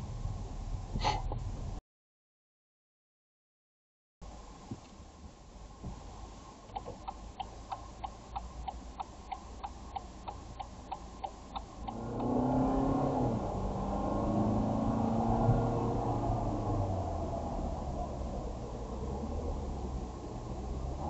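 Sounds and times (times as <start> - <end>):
car engine and tyre noise: 0.0 - 1.8, 4.2 - 21.0
turn signal ticking: 6.6 - 16.7.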